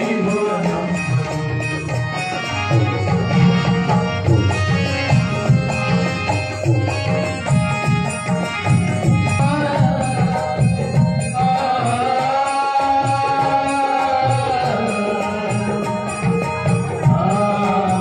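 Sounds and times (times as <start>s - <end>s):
man singing into a microphone: 0.0s - 8.0s, 8.6s - 18.0s
hand drum beats: 0.0s - 12.2s
harmonium: 0.0s - 18.0s.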